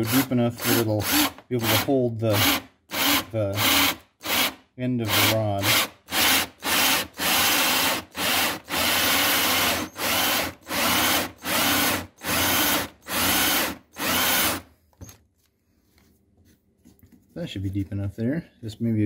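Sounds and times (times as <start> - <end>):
power drill boring into wood: 0.0 - 14.7.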